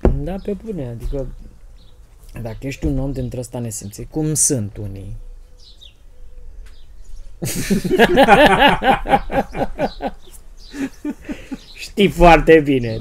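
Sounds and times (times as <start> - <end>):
man laughing heartily: 7.4 - 11.8.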